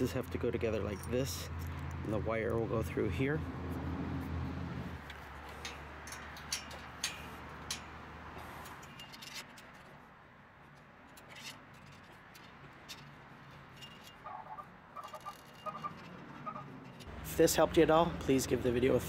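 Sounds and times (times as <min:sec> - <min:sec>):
light metallic clicks and taps: 0:05.0 - 0:08.0.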